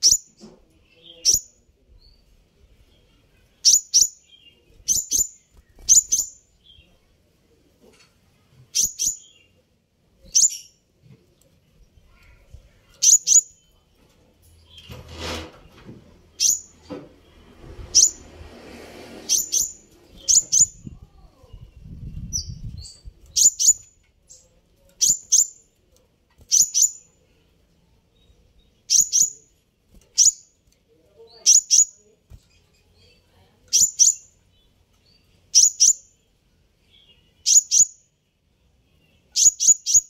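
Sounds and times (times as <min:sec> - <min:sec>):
sunbird high chirps: 0:00.0 - 0:02.3, 0:03.0 - 0:07.0, 0:08.7 - 0:09.6, 0:10.2 - 0:10.8, 0:12.1 - 0:13.8, 0:16.3 - 0:16.8, 0:17.9 - 0:18.3, 0:19.3 - 0:25.7, 0:26.5 - 0:27.2, 0:28.1 - 0:30.6, 0:31.3 - 0:32.2, 0:32.8 - 0:38.1, 0:38.9 - 0:40.0
wing flutter and rustling: 0:14.0 - 0:16.4.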